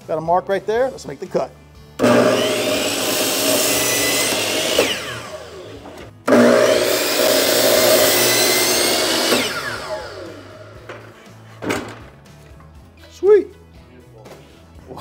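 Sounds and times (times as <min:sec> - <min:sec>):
saw blade winding down whine: 0:02.0 - 0:10.9
miter saw cutting trim board: 0:02.0 - 0:11.2.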